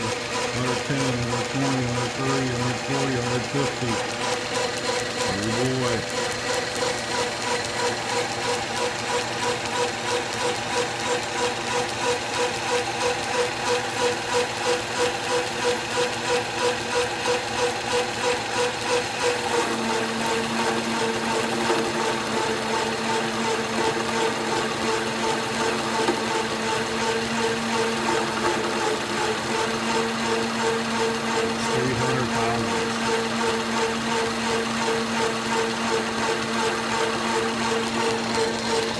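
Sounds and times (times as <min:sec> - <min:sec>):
metal lathe whine: 0:00.0 - 0:38.9.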